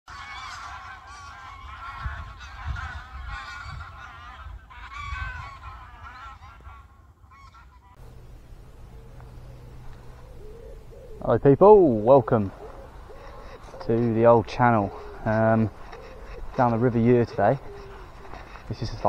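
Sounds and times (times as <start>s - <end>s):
geese honking in flight: 0.1s - 19.0s
low gusty rumble: 8.0s - 19.0s.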